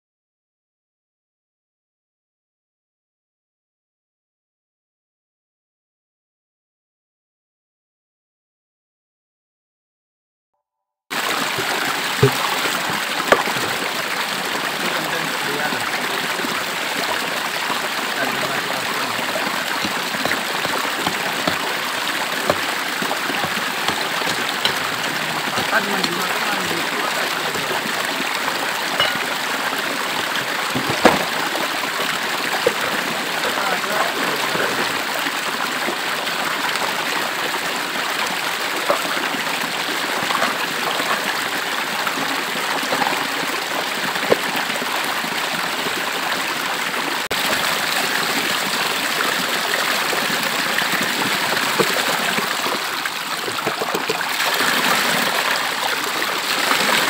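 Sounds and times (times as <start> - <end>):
river rushing over rocks: 11.2 - 35.5
sharp knocks: 12.2 - 13.7, 19.8 - 21.8, 22.4 - 24.9, 30.7 - 31.5.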